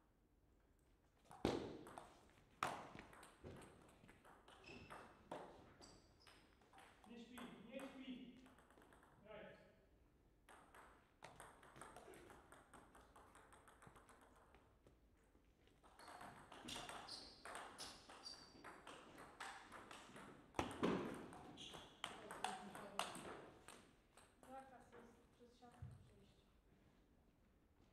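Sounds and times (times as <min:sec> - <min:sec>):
table tennis ball pocks: 0:15.8 - 0:23.8.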